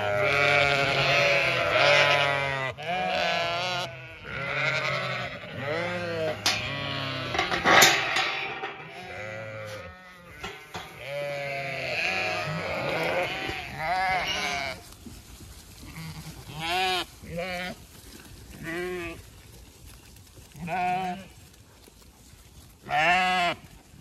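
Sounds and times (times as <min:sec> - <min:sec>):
sheep bleating: 0:00.0 - 0:14.8, 0:15.9 - 0:17.8, 0:20.6 - 0:21.3, 0:22.9 - 0:23.6.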